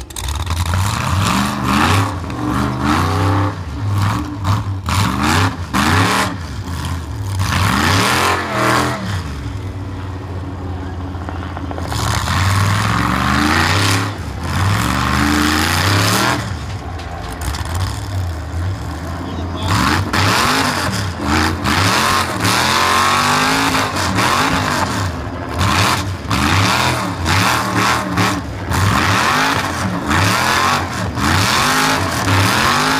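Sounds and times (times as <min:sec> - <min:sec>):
buggy engine revving hard: 0:00.0 - 0:09.7, 0:11.5 - 0:32.9.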